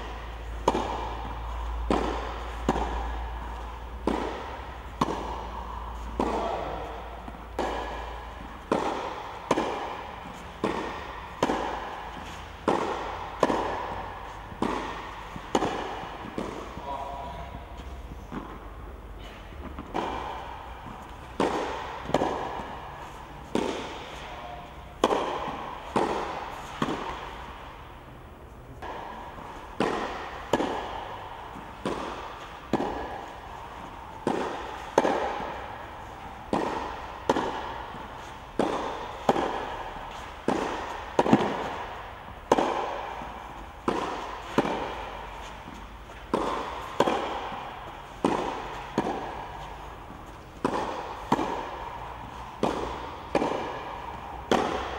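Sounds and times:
tennis ball bouncing on clay: 0:00.0 - 0:18.8, 0:19.6 - 0:27.9, 0:28.8 - 0:54.9
racket hitting tennis ball: 0:00.0 - 0:54.9.

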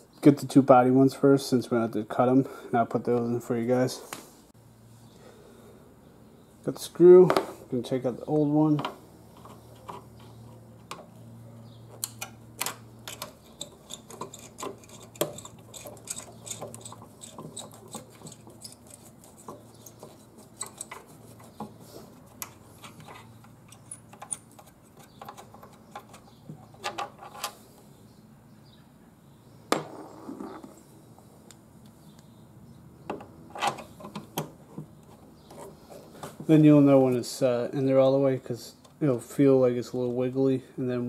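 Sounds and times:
screwdriver clicking and scraping: 0:12.0 - 0:27.5.

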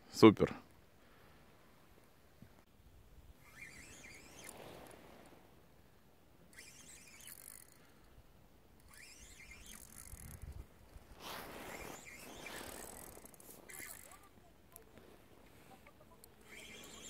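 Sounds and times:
fishing reel winding: 0:03.4 - 0:05.0, 0:06.5 - 0:15.0, 0:15.8 - 0:17.0.

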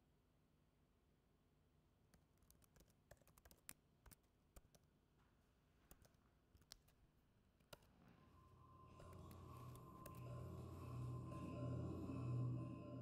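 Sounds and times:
keyboard typing: 0:02.2 - 0:04.9.

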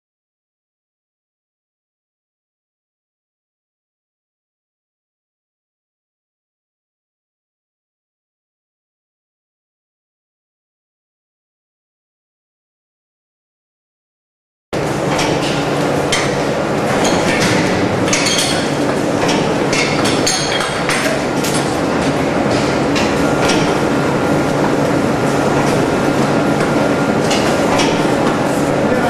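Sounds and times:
factory machinery hum: 0:14.8 - 0:29.0.

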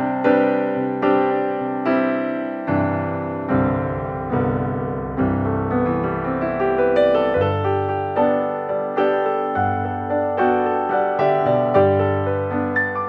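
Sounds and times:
slow soft piano music: 0:00.0 - 0:13.0.

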